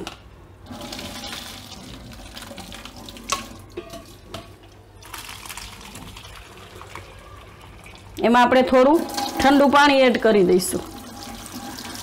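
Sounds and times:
water pouring into colander: 0.6 - 3.7, 5.0 - 8.2, 8.9 - 9.7, 10.8 - 12.0.

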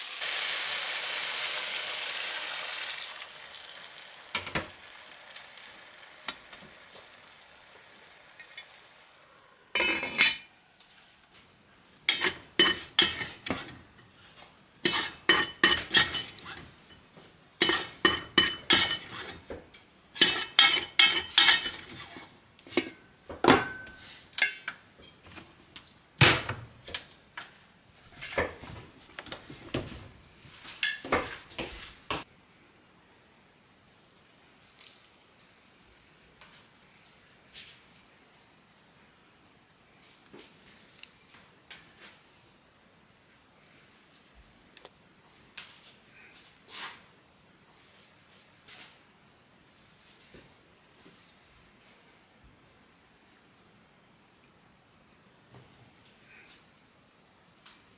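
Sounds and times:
pot simmering with faint hiss: 0.0 - 57.9
utensil clinking on metal pot: 20.2 - 22.0.

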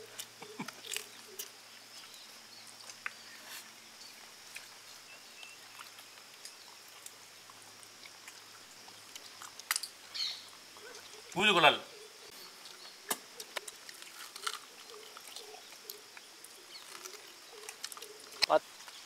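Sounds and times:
chewing and sucking on bones: 0.0 - 3.2, 5.4 - 11.2, 13.4 - 19.0.

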